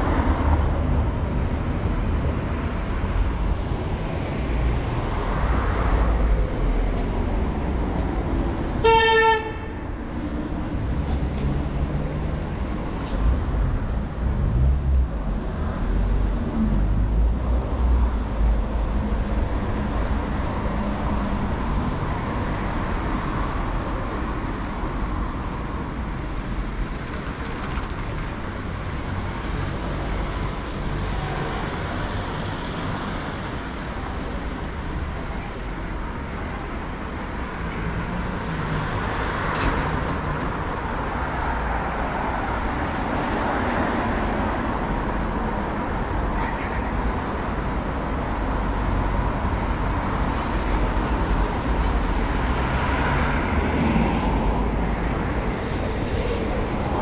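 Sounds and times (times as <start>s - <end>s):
street traffic rumble: 0.0s - 57.0s
vehicle horn toot: 8.8s - 9.8s.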